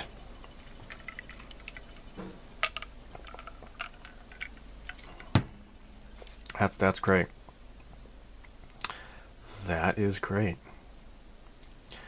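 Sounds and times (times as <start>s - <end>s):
soft liquid sounds: 0.0s - 5.4s.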